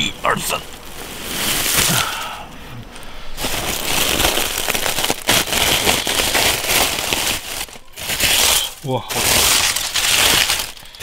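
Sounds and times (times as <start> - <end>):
aluminium foil crinkling and tearing: 0.7 - 2.4, 3.4 - 11.0.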